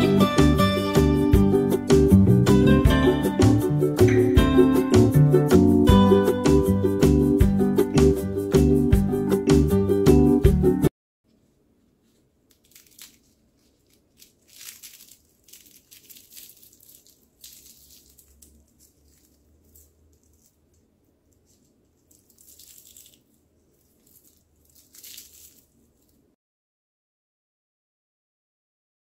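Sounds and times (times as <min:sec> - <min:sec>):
pastry crackling and crunching: 0:12.0 - 0:26.4.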